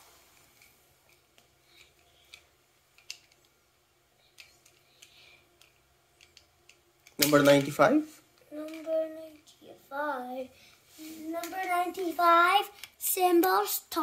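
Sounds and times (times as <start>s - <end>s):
toy cars clicking together: 0.6s - 3.5s, 4.4s - 7.9s, 8.6s - 9.5s
soft rustles: 10.6s - 12.8s.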